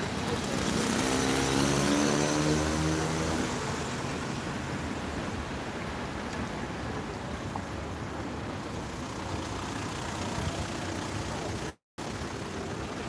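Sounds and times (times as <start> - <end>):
vehicle engine passing by: 0.0 - 4.4
street traffic noise: 0.0 - 13.0.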